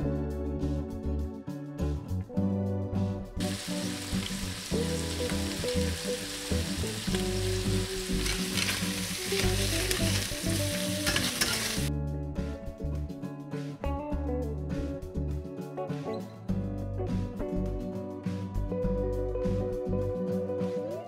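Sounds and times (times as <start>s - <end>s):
soft background music: 0.0s - 21.0s
chicken sizzling in a frying pan: 3.4s - 11.9s.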